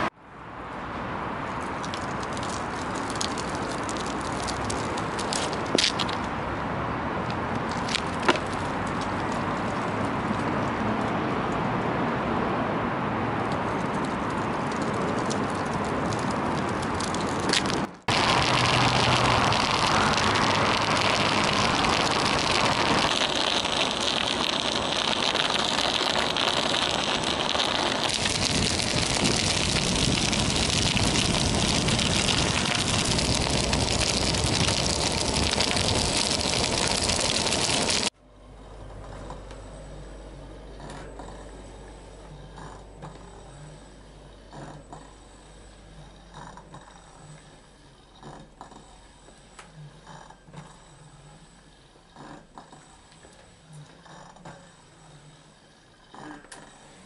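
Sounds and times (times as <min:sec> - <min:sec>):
wind and tyre noise: 0:00.0 - 0:49.0
small clicks and ticks: 0:01.6 - 0:06.3, 0:13.4 - 0:38.2.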